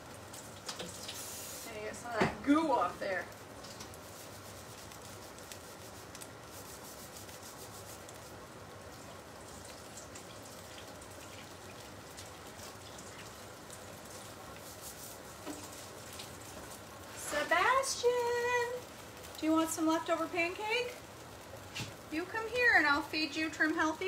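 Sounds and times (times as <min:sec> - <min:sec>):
pancakes sizzling in frying pan: 0:00.0 - 0:24.0
water trickling in sink: 0:08.9 - 0:16.6.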